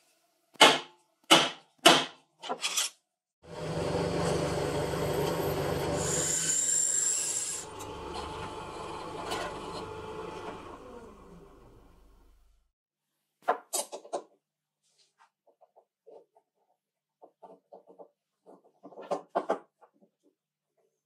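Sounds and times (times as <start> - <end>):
drill press running: 3.5 - 12.2
drill bit squealing in metal: 6.0 - 7.7.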